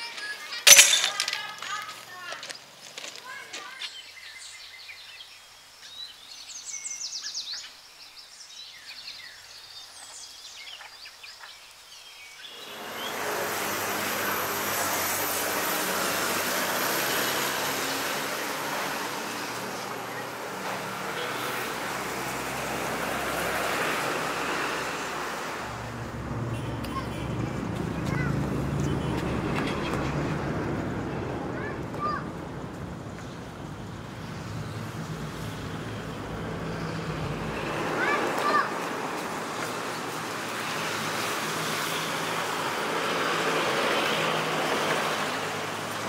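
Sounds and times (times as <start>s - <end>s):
road traffic noise: 0.0s - 5.0s, 12.4s - 46.0s
birds chirping: 0.0s - 13.6s.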